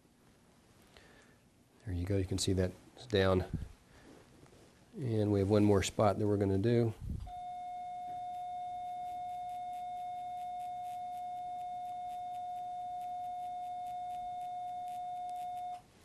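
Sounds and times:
steady electronic beep: 0:07.3 - 0:15.8.

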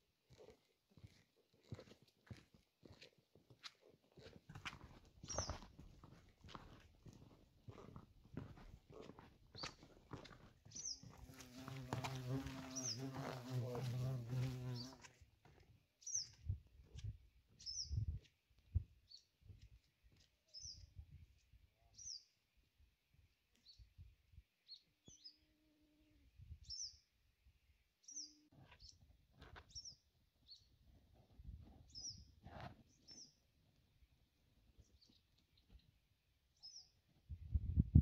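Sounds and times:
small bird chirping: 0:05.2 - 0:05.6, 0:17.5 - 0:18.1, 0:31.9 - 0:32.3.

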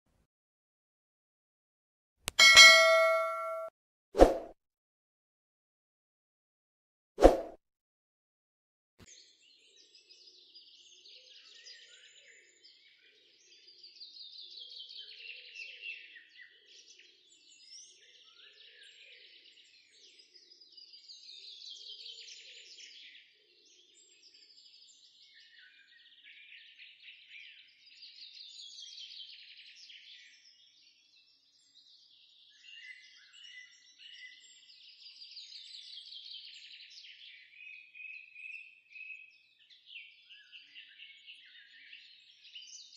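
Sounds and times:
bird-like chirping trills: 0:02.4 - 0:03.7.

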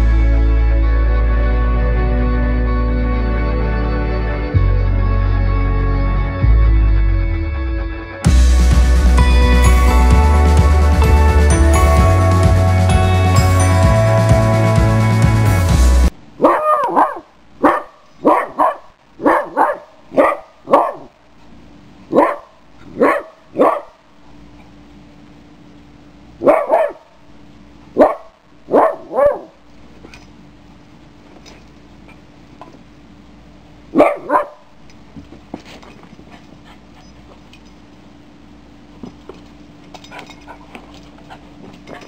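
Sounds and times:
short single barks: 0:16.4 - 0:21.1
puppy barking: 0:16.4 - 0:21.2, 0:22.1 - 0:24.0, 0:26.4 - 0:27.2, 0:28.0 - 0:29.6, 0:33.9 - 0:34.7.

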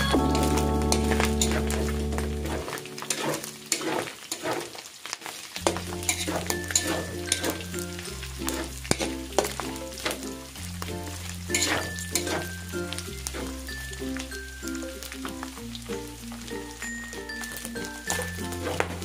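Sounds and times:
background music with bass: 0:00.0 - 0:02.8, 0:05.7 - 0:19.0
meat sizzling in a pan: 0:00.0 - 0:19.0
scraping in a pan: 0:01.0 - 0:10.2, 0:11.5 - 0:12.6, 0:13.2 - 0:13.7, 0:18.1 - 0:19.0.

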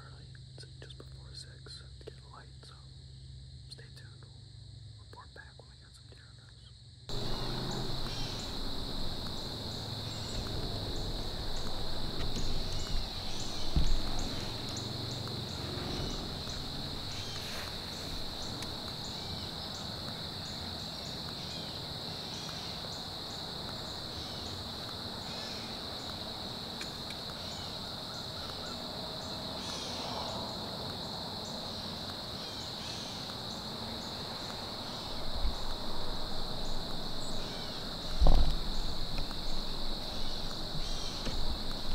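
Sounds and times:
insect chorus drone: 0:00.0 - 0:41.9
fast insect ticks: 0:05.2 - 0:41.9
dull thump: 0:07.1 - 0:19.0, 0:38.0 - 0:39.6, 0:40.3 - 0:41.9
low rustling: 0:07.1 - 0:21.2.

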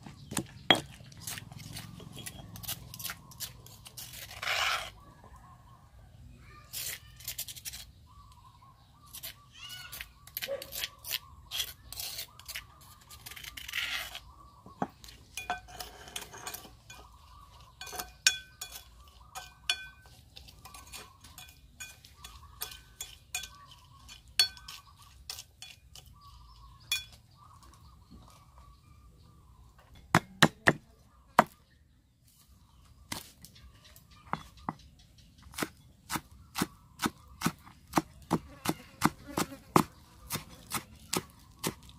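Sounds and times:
metal spoon scraping stone mortar: 0:00.2 - 0:05.0, 0:06.6 - 0:08.0, 0:09.0 - 0:27.7
cleaver chopping on wooden board: 0:00.3 - 0:02.4, 0:30.1 - 0:30.8, 0:31.4 - 0:31.6, 0:35.5 - 0:41.9.

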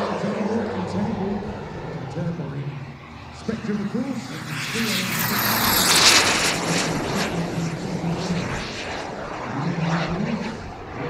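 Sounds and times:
model jet turbine passing: 0:00.0 - 0:11.0.

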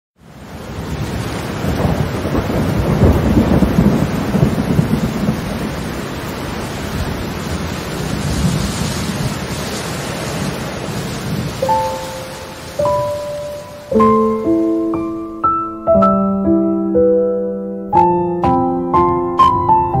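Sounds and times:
steady rain: 0:00.2 - 0:15.6
thunder rumbling: 0:00.4 - 0:15.6.

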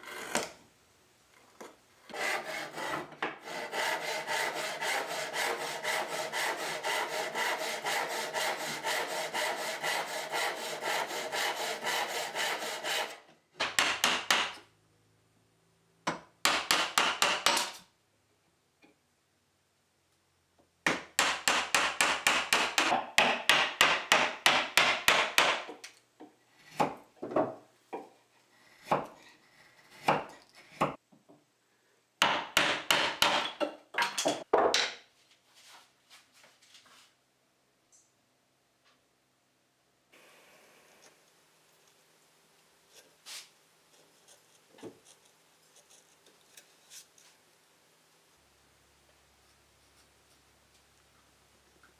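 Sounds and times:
hand saw rasping: 0:02.1 - 0:13.2
chisel working wood: 0:02.1 - 0:14.6, 0:16.4 - 0:17.7, 0:26.6 - 0:31.0, 0:32.2 - 0:33.5.

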